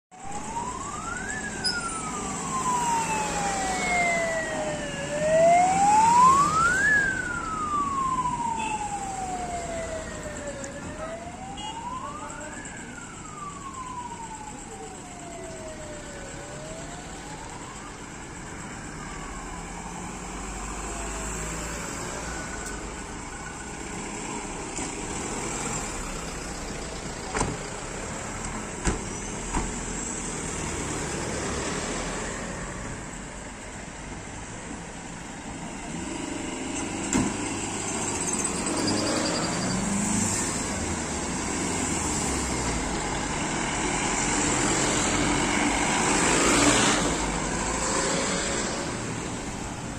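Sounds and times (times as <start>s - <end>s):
police sirens wailing: 0.1s - 49.9s
vehicle noise: 0.1s - 49.9s
fainter higher siren: 0.2s - 22.6s.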